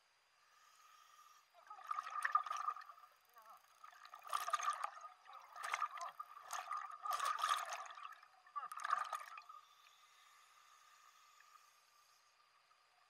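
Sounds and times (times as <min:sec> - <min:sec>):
faint steady tone: 0:00.0 - 0:13.0
diver bubbles gurgling underwater: 0:01.7 - 0:03.0, 0:03.8 - 0:09.5.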